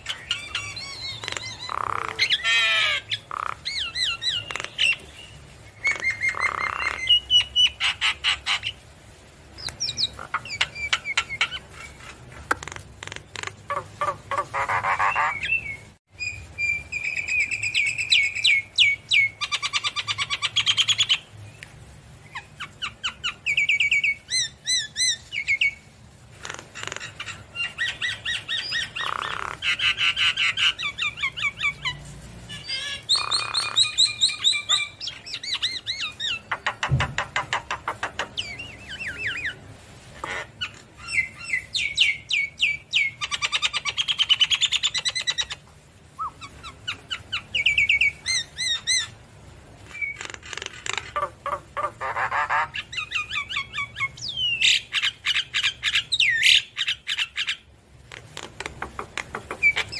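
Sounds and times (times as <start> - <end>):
bird chattering trills and whistles: 0.0 - 8.8, 9.6 - 12.1, 13.0 - 21.3, 26.4 - 32.0, 32.6 - 39.6, 46.2 - 49.2, 49.9 - 59.9.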